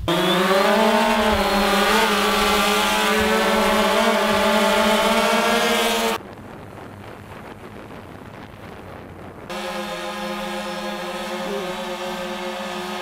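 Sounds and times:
quadcopter propellers humming: 0.0 - 6.2, 9.5 - 13.0.

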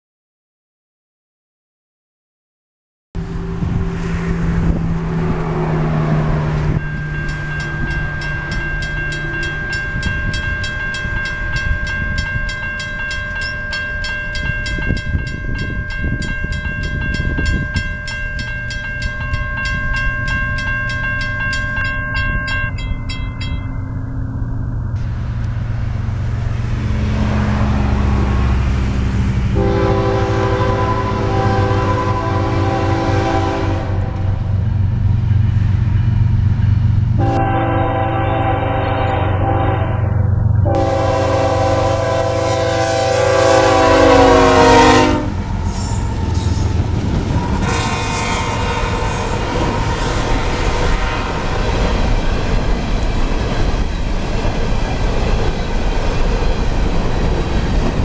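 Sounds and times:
diesel locomotive rumble: 3.2 - 58.0
crossing bell ringing: 5.6 - 24.9, 29.6 - 58.0
locomotive air horn: 29.5 - 34.4, 37.2 - 46.6, 47.3 - 51.5.

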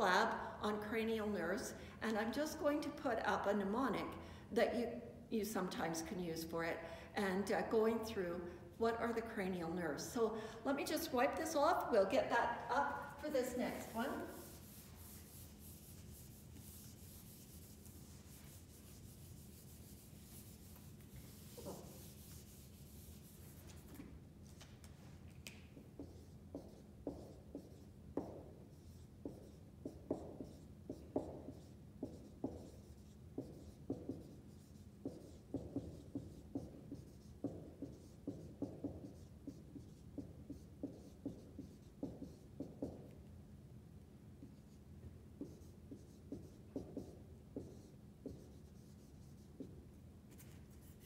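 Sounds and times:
marker writing on whiteboard: 12.7 - 24.7, 25.4 - 43.2, 44.4 - 44.8, 45.4 - 51.0
eraser rubbing on whiteboard: 13.3 - 24.6, 25.8 - 43.1, 45.4 - 51.0.

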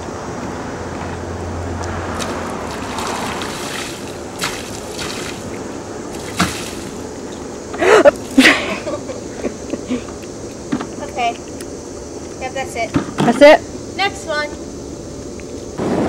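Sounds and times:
water splashing over plastic hull: 2.0 - 7.4.

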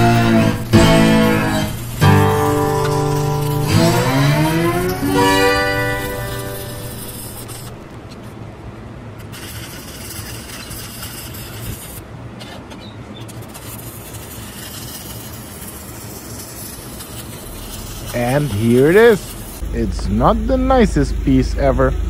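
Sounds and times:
guitar music: 0.0 - 7.9
welding arc hissing: 0.0 - 8.1, 9.2 - 12.0, 13.3 - 22.0.

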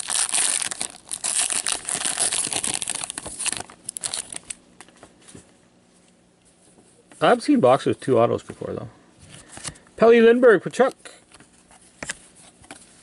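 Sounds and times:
wrapper tearing and crinkling: 0.0 - 4.6.

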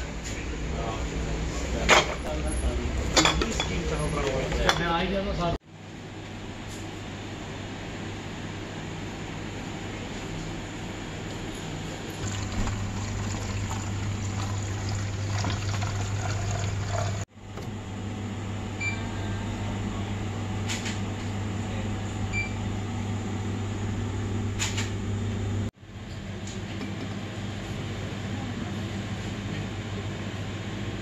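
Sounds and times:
oil pouring into a bottle: 12.2 - 17.2.

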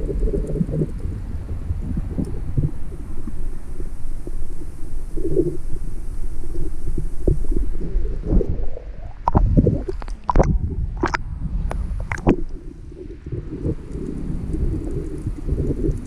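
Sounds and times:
water sloshing against camera housing: 9.2 - 12.6.

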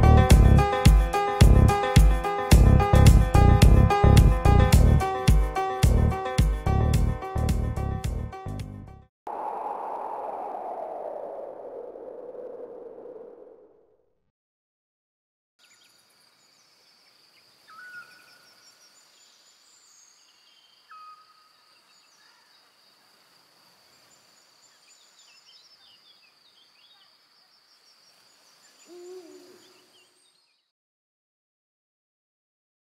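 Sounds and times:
insect trill: 15.6 - 30.4
small bird chirps: 24.1 - 30.7
low hooting call: 28.8 - 29.9.

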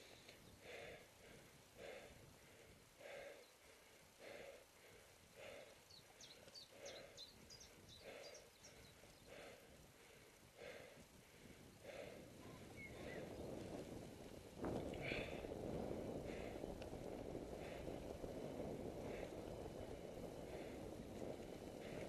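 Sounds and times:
person breathing rhythmically: 0.0 - 22.0
bird chirping: 5.7 - 9.5.

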